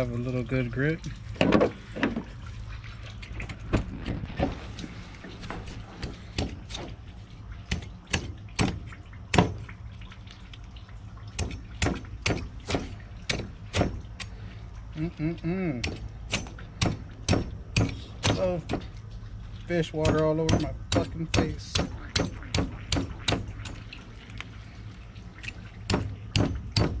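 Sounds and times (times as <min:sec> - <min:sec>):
steady low hum: 0:00.0 - 0:27.0
machete chopping into fish hide: 0:07.7 - 0:09.6, 0:11.4 - 0:14.0, 0:20.0 - 0:23.8.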